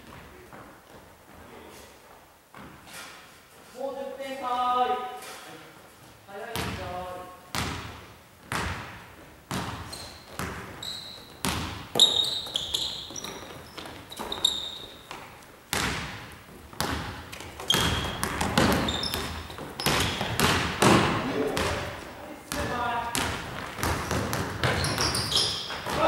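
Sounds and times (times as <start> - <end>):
basketball bouncing on hardwood floor: 6.5 - 6.9, 7.5 - 10.8, 11.4 - 26.0
sneakers squeaking: 7.5 - 26.0.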